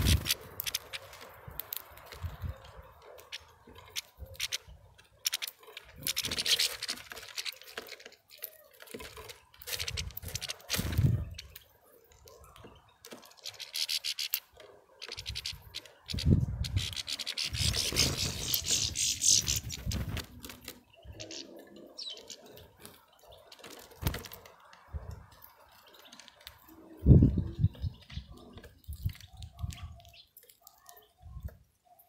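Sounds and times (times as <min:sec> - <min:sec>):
wing flutter: 0:00.0 - 0:11.6, 0:13.1 - 0:24.6
seeds rustling and clicking: 0:00.0 - 0:27.1.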